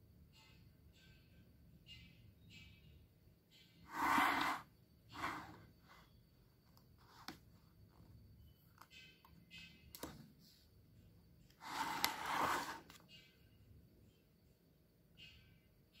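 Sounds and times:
book page turning: 0:11.7 - 0:13.0.

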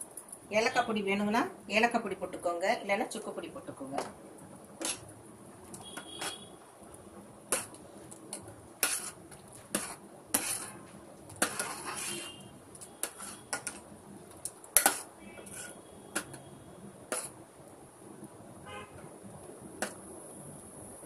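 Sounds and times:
metal utensil scraping a pot: 0:04.8 - 0:05.1, 0:05.9 - 0:06.5, 0:07.5 - 0:07.8, 0:08.8 - 0:12.4, 0:13.0 - 0:13.8, 0:14.8 - 0:16.4.

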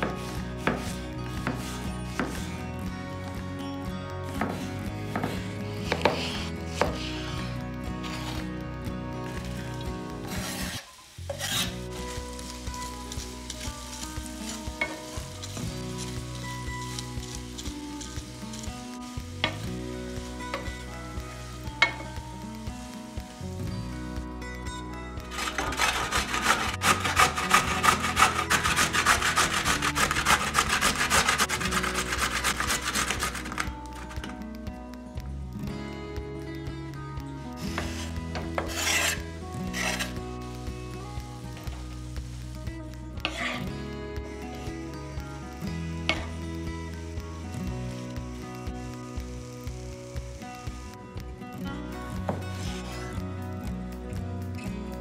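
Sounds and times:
spatula scraping and tapping pan: 0:00.0 - 0:02.5, 0:04.3 - 0:07.4, 0:10.2 - 0:23.0, 0:25.2 - 0:34.4, 0:37.6 - 0:40.2, 0:43.2 - 0:43.7, 0:46.1 - 0:46.4
onions sizzling in hot oil: 0:09.2 - 0:34.3, 0:37.5 - 0:51.0
carrot grated on metal grater: 0:25.3 - 0:33.7.

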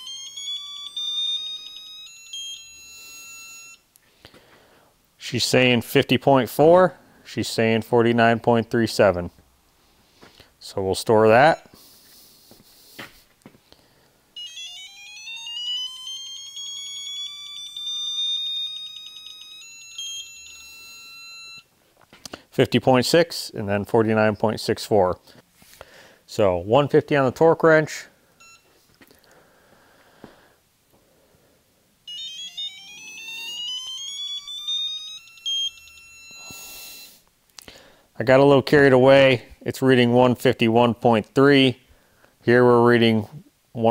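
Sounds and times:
steady high tone: 0:00.0 - 0:03.8, 0:14.4 - 0:21.7, 0:32.0 - 0:37.2
torque wrench beeps rising in pitch: 0:32.1 - 0:37.2.

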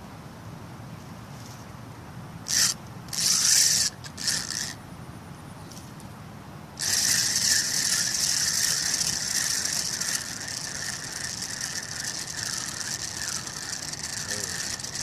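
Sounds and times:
fishing reel cranking and clicking: 0:02.5 - 0:04.8, 0:06.8 - 0:15.0.

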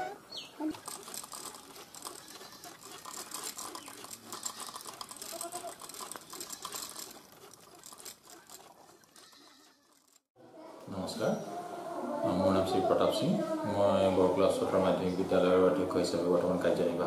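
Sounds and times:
handloom clicking and rattling: 0:00.6 - 0:10.3.

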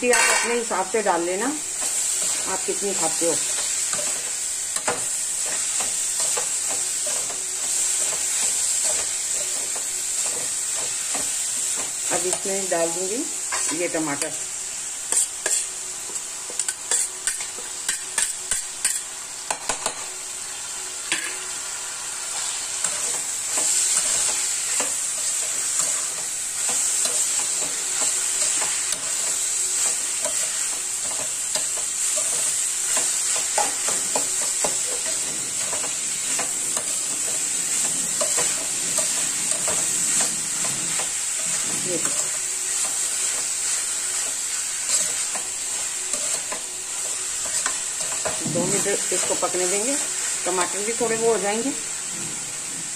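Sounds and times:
metal spatula scraping pan: 0:00.0 - 0:00.7, 0:15.1 - 0:15.7
vegetables sizzling in a pan: 0:00.0 - 0:52.9.

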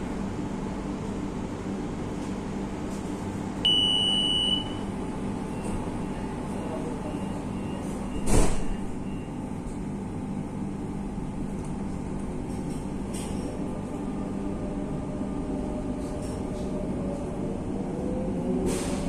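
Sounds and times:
train car hum: 0:00.0 - 0:19.0
loud electronic beep: 0:03.7 - 0:04.7.

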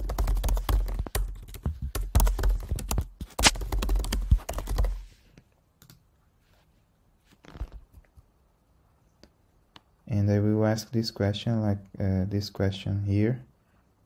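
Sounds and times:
fast typing on keyboard: 0:00.0 - 0:05.0.

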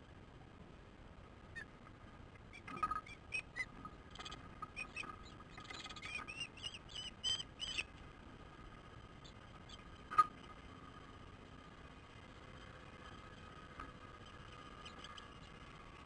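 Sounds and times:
ospreys chirping: 0:01.5 - 0:01.8, 0:02.4 - 0:07.9, 0:09.1 - 0:10.3, 0:14.2 - 0:15.7.

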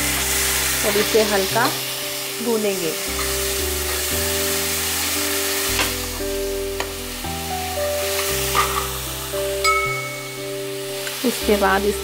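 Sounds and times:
onion and tomato sizzling in oil: 0:00.0 - 0:12.0
soft background music: 0:00.0 - 0:12.0
steel spoon scraping a pan: 0:03.1 - 0:04.1.

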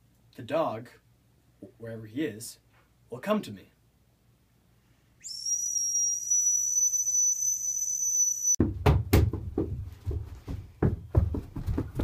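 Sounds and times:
high-pitched dog whistle: 0:05.2 - 0:08.6
person scrambling on floor: 0:09.2 - 0:12.0.

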